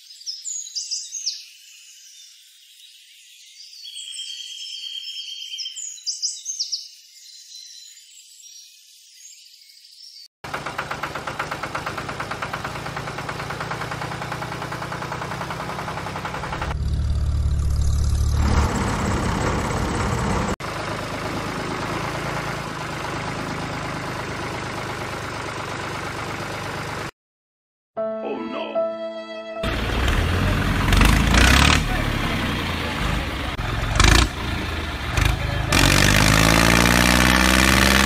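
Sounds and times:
tractor engine knocking: 0:10.4 - 0:17.1, 0:18.5 - 0:27.1, 0:29.6 - 0:36.6
deep hum: 0:16.4 - 0:20.5.

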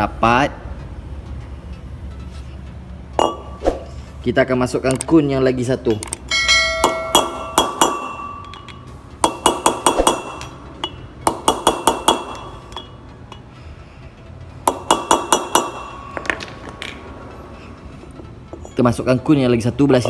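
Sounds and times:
hammer tapping metal drift: 0:06.0 - 0:13.6, 0:14.6 - 0:16.6.

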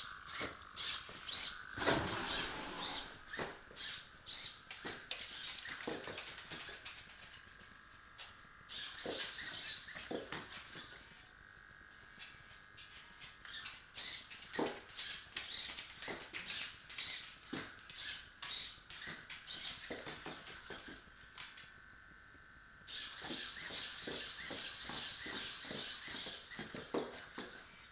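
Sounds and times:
servos whirring: 0:00.0 - 0:04.6.

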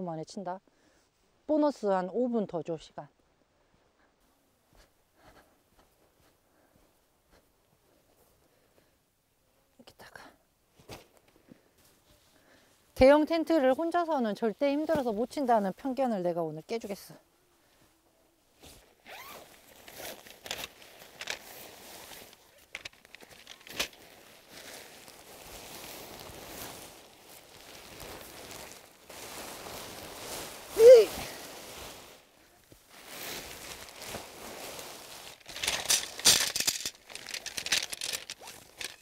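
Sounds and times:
fabric rustling and scraping: 0:13.6 - 0:15.7, 0:18.5 - 0:39.0
zip being pulled: 0:19.0 - 0:20.5, 0:35.4 - 0:39.0
gear rattles and sharp knocks: 0:35.4 - 0:39.0.

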